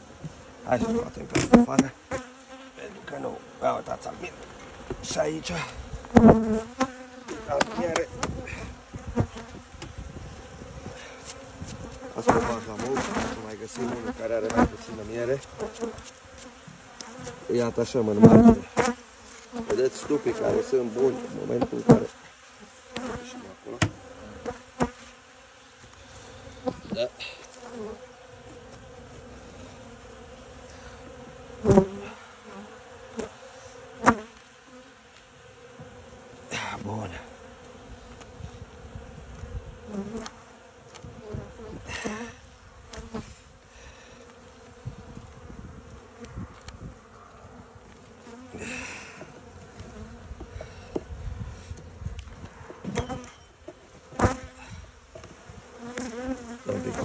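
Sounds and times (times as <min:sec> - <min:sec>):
bees humming: 0:00.0 - 0:57.0.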